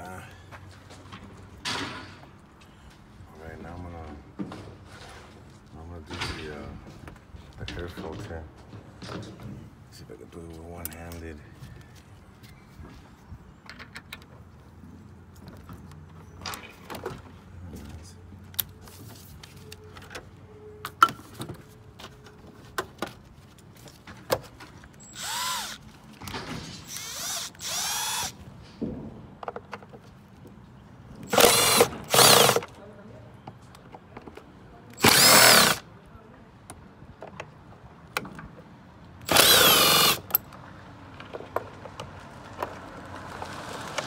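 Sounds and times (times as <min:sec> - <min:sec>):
cordless driver spinning screws: 0:25.0 - 0:25.8, 0:26.8 - 0:28.4, 0:31.3 - 0:32.6, 0:35.0 - 0:35.8, 0:39.2 - 0:40.4.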